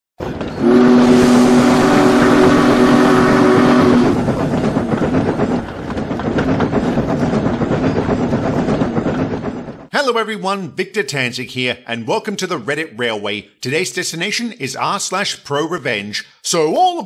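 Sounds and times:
train rumbling and clattering: 0:00.2 - 0:10.2
steam train whistle: 0:00.5 - 0:04.3.

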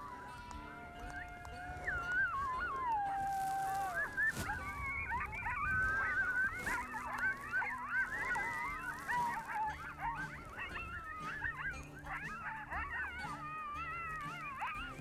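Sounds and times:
coyotes howling and yipping: 0:00.0 - 0:15.0.

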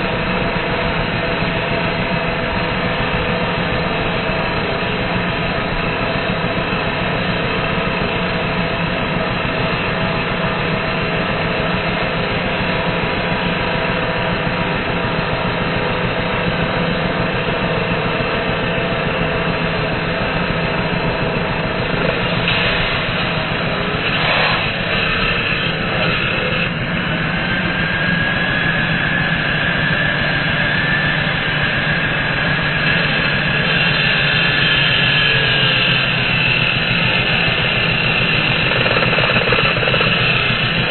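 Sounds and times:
angle grinder cutting steel: 0:21.7 - 0:40.9.

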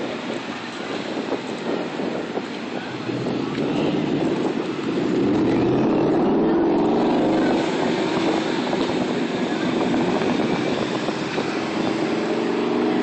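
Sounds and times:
street traffic: 0:00.0 - 0:13.0
wind buffeting microphone: 0:00.0 - 0:13.0.

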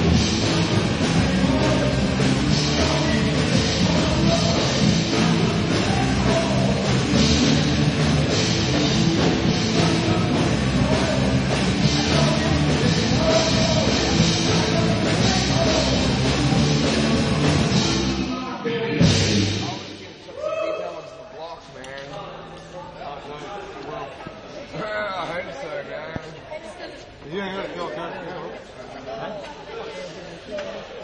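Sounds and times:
heavy metal rock band playing: 0:00.0 - 0:18.3, 0:18.9 - 0:19.7.

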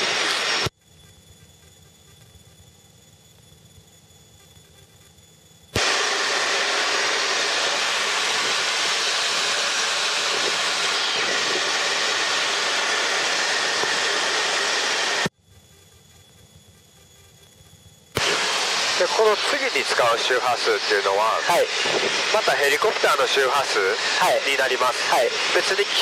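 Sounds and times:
radio static hiss: 0:00.0 - 0:00.7, 0:18.2 - 0:26.0.

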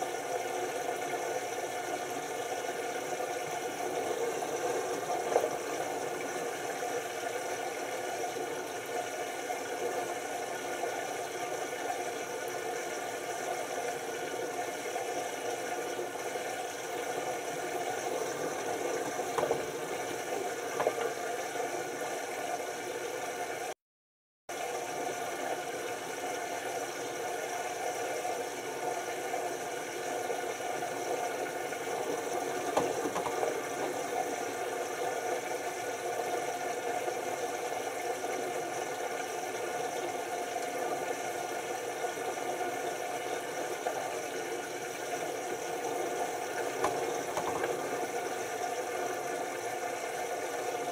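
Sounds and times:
washing machine drum tumbling laundry: 0:03.4 - 0:07.5, 0:15.6 - 0:22.3, 0:31.1 - 0:35.2, 0:45.8 - 0:49.3.

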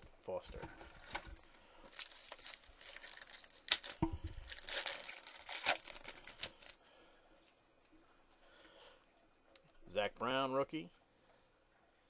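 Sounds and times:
foil wrapper tearing and crinkling: 0:00.9 - 0:06.8.

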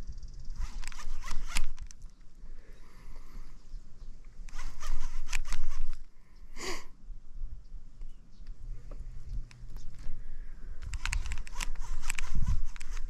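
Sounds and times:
fishing reel whirring clicks: 0:00.2 - 0:02.0, 0:04.4 - 0:06.0, 0:10.8 - 0:13.0.

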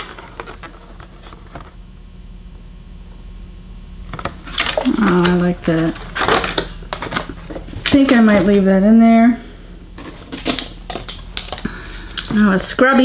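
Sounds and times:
packaging rustling and crinkling: 0:04.1 - 0:08.7, 0:10.0 - 0:12.5.

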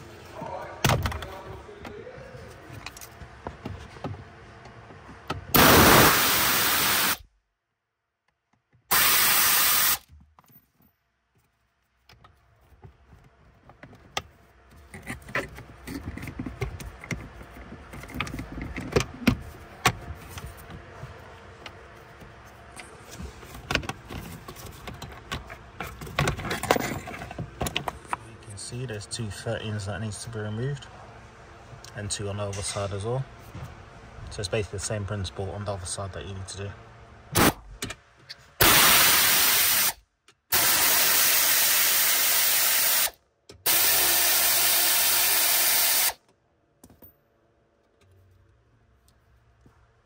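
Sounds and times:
steady hiss-like noise bursts: 0:05.6 - 0:07.2, 0:08.9 - 0:10.0, 0:38.6 - 0:46.2.

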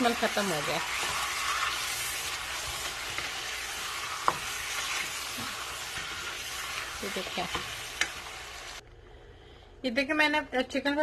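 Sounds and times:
chicken frying in hot oil: 0:00.0 - 0:08.8
wooden spatula stirring: 0:00.0 - 0:08.8.

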